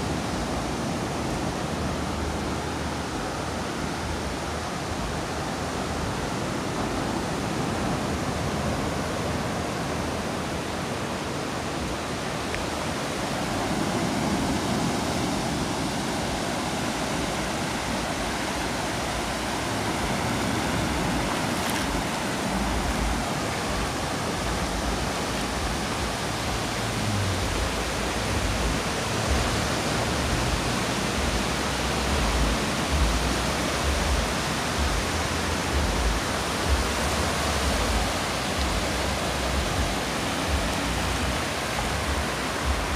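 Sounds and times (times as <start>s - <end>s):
small waves washing on sand: 0.0s - 42.9s
wind rumble on microphone: 0.0s - 42.9s.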